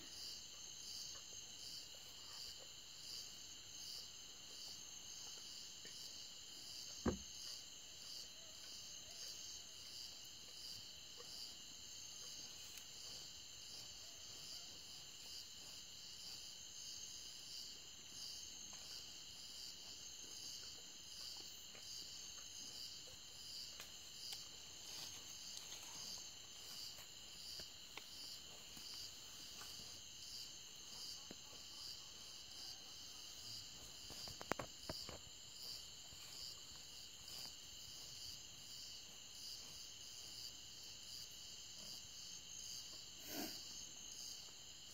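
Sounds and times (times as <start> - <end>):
crickets trilling: 0.1 - 44.9
low thump: 7.0 - 7.3.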